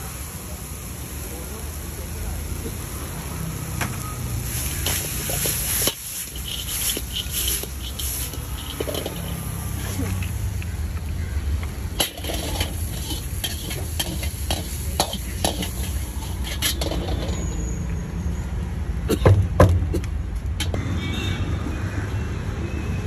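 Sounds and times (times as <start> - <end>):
metal utensils clinking: 4.4 - 10.4, 11.9 - 17.8.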